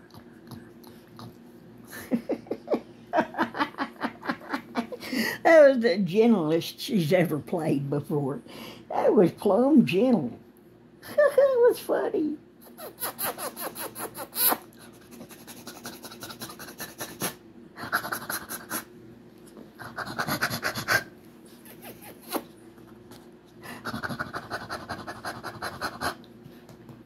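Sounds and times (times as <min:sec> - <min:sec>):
dog panting: 0:00.0 - 0:01.6, 0:14.7 - 0:18.9, 0:19.8 - 0:22.5, 0:23.6 - 0:26.3.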